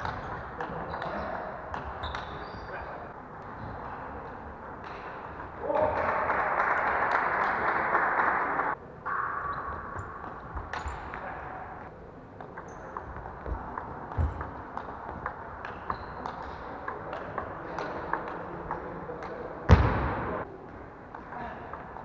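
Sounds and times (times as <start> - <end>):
loud thump: 19.7 - 20.4.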